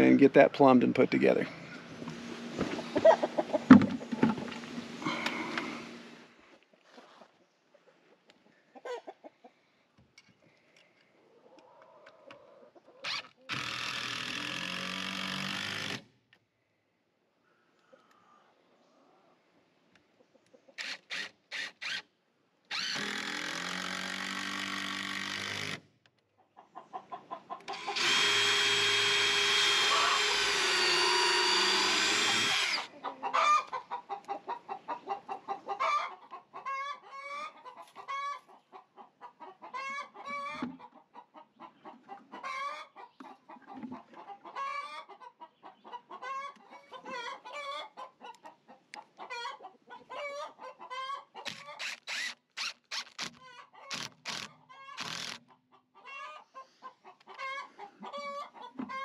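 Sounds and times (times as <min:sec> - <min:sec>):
chickens clucking: 0:00.3 - 0:09.9, 0:10.8 - 0:13.5, 0:17.9 - 0:20.8, 0:26.3 - 0:28.0, 0:29.9 - 0:30.3, 0:32.8 - 0:51.8, 0:53.4 - 0:59.0
cordless drill driving screws: 0:13.0 - 0:16.0, 0:20.8 - 0:22.0, 0:22.7 - 0:25.8, 0:27.7 - 0:32.9, 0:51.5 - 0:55.4.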